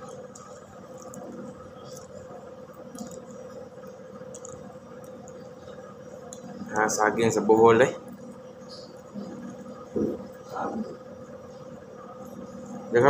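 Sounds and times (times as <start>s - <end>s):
man chewing: 0.0s - 6.8s.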